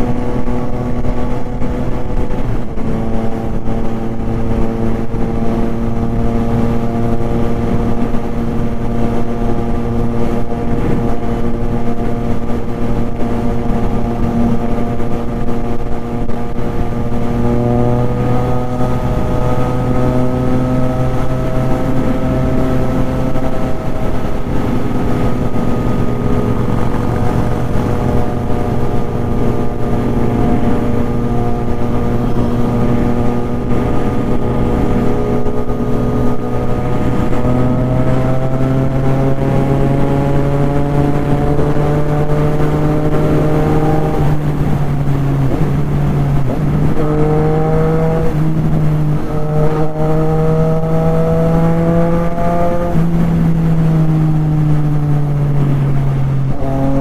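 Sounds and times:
motorcycle engine cruising: 0:00.0 - 0:57.0.

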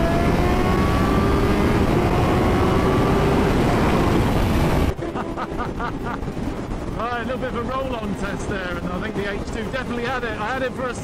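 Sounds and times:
motorcycle engine accelerating: 0:00.0 - 0:06.9
heavy wind noise: 0:00.0 - 0:11.0.

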